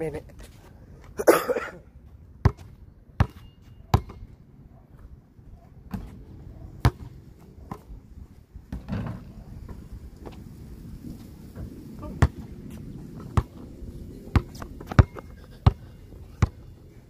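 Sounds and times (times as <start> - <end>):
basketball bouncing on pavement: 2.1 - 4.4, 5.8 - 7.9, 8.7 - 10.4, 11.5 - 13.7, 14.3 - 16.8.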